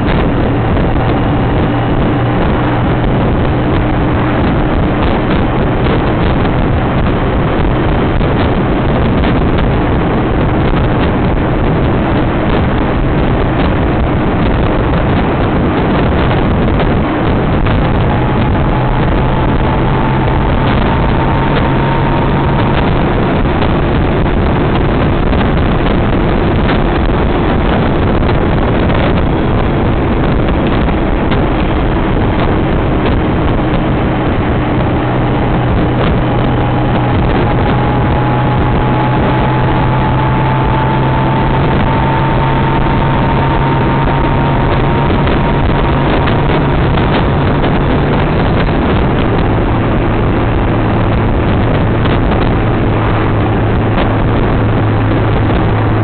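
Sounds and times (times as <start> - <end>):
motorcycle engine droning: 0.0 - 56.0
wind rush on microphone: 0.0 - 56.0
faint rising whine: 16.1 - 26.1, 31.1 - 56.0.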